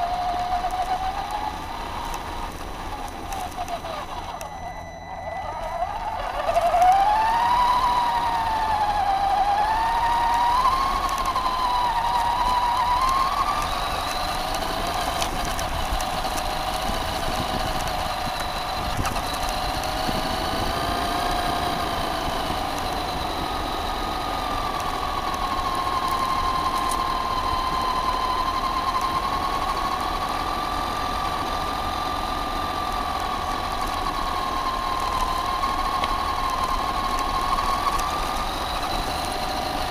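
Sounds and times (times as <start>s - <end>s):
electric motor whining: 0.0s - 39.9s
tyres on gravel: 0.0s - 39.9s.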